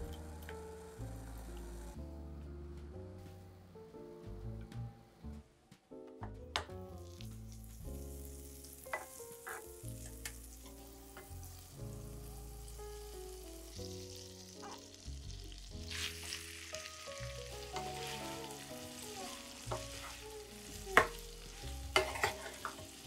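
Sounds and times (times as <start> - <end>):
background music: 0.0 - 23.0
food sizzling in a frying pan: 6.9 - 23.0.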